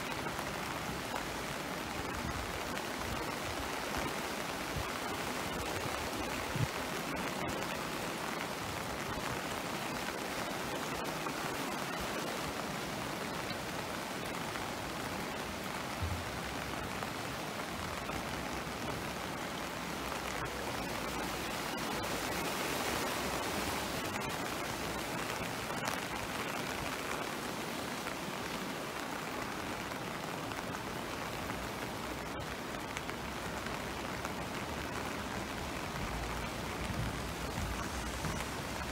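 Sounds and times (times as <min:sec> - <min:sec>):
floodwater rushing: 0:00.0 - 0:38.9
low thump: 0:16.0 - 0:16.4.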